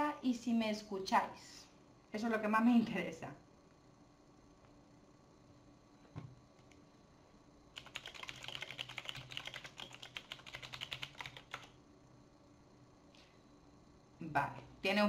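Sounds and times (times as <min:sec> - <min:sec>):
fast typing on a keyboard: 0:07.7 - 0:11.8.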